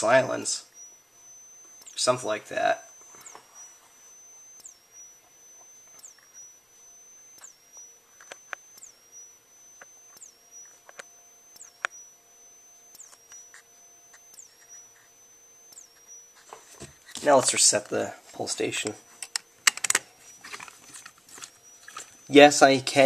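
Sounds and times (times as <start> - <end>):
high-pitched strobe charging whine: 0.0 - 23.0.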